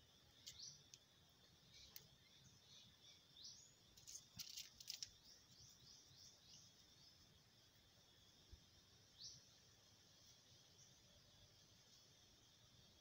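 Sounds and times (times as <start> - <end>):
steady high hiss: 0.0 - 13.0
clicks and rustles of handling: 4.0 - 5.2.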